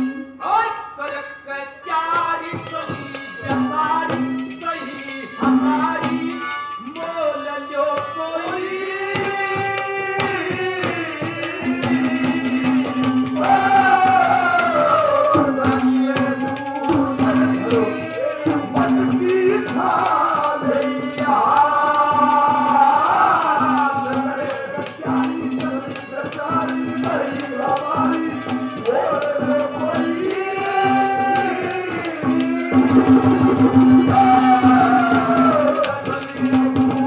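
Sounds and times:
held instrument note: 0:00.0 - 0:37.0
man singing into a microphone: 0:00.0 - 0:37.0
hand drum strokes: 0:09.1 - 0:37.0.

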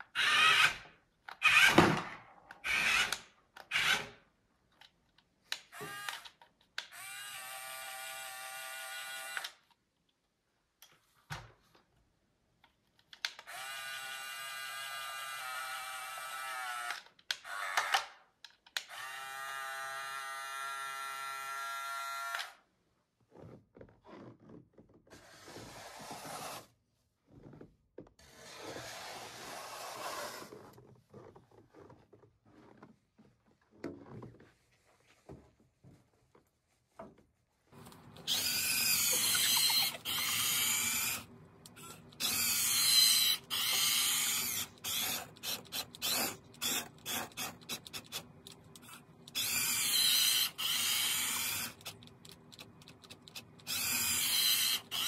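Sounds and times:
small electric motors whining: 0:37.9 - 0:55.0
motor whirring bursts: 0:38.2 - 0:52.0.

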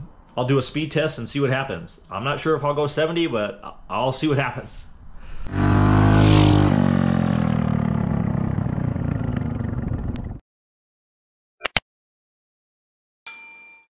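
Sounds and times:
minibike engine passing at speed: 0:05.5 - 0:10.4.

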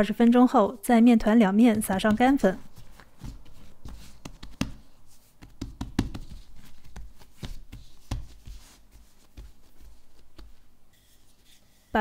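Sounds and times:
hands patting bread dough: 0:01.5 - 0:10.8.

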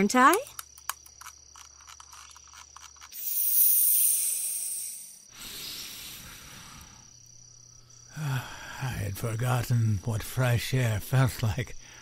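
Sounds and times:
crickets chirping: 0:00.0 - 0:12.0
loud hiss of escaping air: 0:03.2 - 0:07.1.

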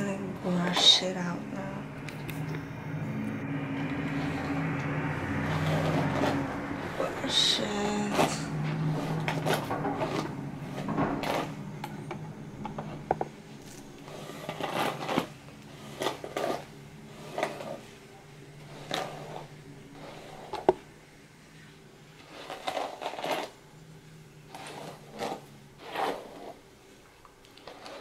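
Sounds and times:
hairbrush swishing through hair: 0:03.9 - 0:11.6, 0:14.0 - 0:17.9, 0:24.5 - 0:26.6.

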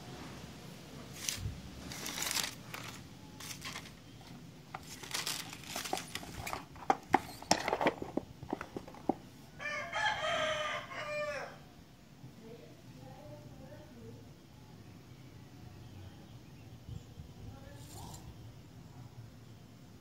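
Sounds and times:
plastic packaging crinkling: 0:01.1 - 0:09.2
rooster crowing: 0:09.6 - 0:11.7.

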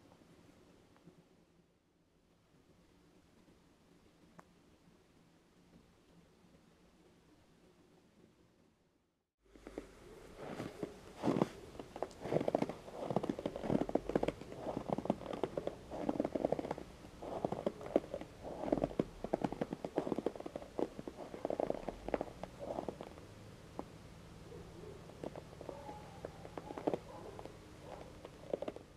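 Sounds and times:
footsteps crunching in snow: 0:09.6 - 0:23.2, 0:25.1 - 0:28.8.

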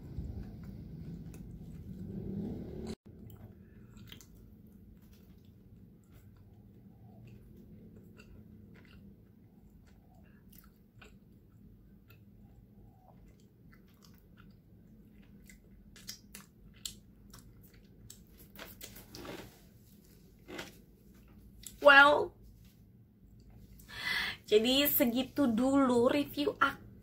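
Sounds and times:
chewing with wet mouth clicks: 0:00.2 - 0:19.5.

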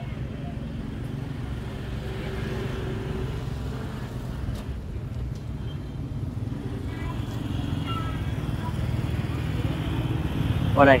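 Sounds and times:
motorbike engines rumbling: 0:00.0 - 0:11.0.

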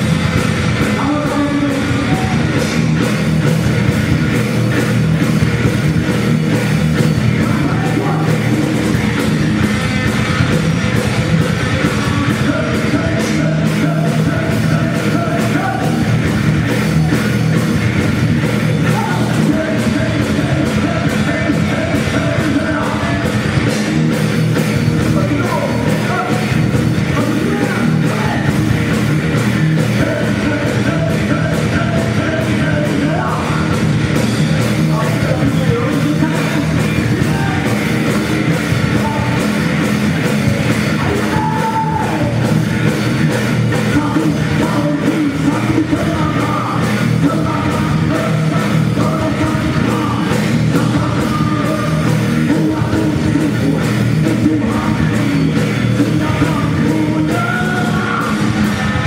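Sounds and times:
bass guitar: 0:00.0 - 0:59.0
drums: 0:00.0 - 0:59.0
electric guitar: 0:00.0 - 0:59.0
person singing: 0:00.8 - 0:02.8, 0:07.2 - 0:09.2, 0:11.0 - 0:17.6, 0:18.5 - 0:23.4, 0:29.8 - 0:33.8, 0:34.6 - 0:39.6, 0:40.2 - 0:42.6, 0:43.7 - 0:59.0.

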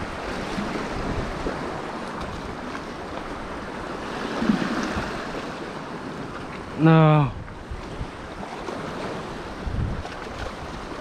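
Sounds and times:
small waves washing against rocks: 0:00.0 - 0:06.8, 0:07.6 - 0:11.0
wind buffeting microphone: 0:00.0 - 0:11.0.

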